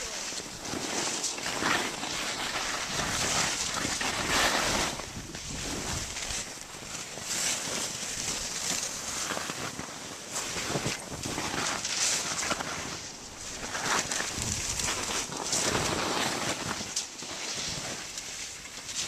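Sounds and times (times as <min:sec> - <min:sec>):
skis hissing through powder snow: 0:00.0 - 0:19.0
wind rushing over microphone: 0:02.5 - 0:06.4, 0:13.4 - 0:15.3.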